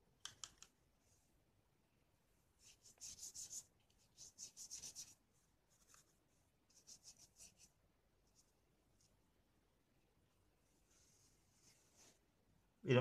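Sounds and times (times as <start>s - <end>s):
paintbrush scrubbing on paper: 2.6s - 8.5s.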